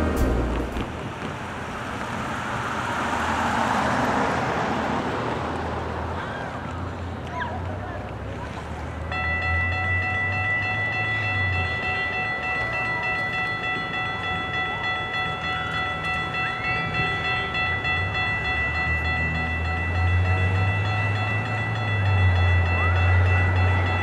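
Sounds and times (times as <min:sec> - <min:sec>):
crossing warning bell ringing: 0:00.0 - 0:01.6, 0:08.6 - 0:24.0
low engine rumble: 0:00.0 - 0:03.2.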